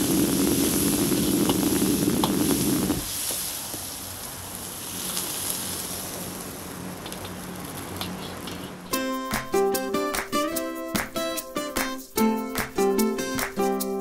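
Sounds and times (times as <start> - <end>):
chillies sizzling in hot oil: 0.0 - 8.9
gas burner roaring: 0.0 - 9.0.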